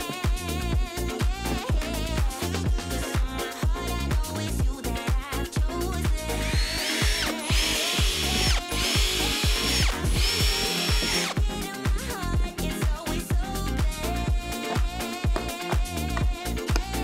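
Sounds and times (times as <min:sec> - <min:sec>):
dance music with steady beat: 0:00.0 - 0:17.0
cordless drill whine: 0:06.4 - 0:11.4.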